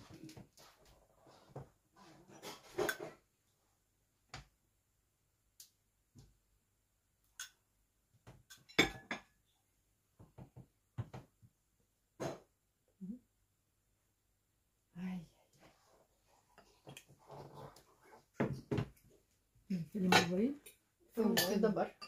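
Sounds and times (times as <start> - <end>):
dishes and utensils clinking: 2.3 - 3.2, 8.4 - 9.4, 20.0 - 22.0.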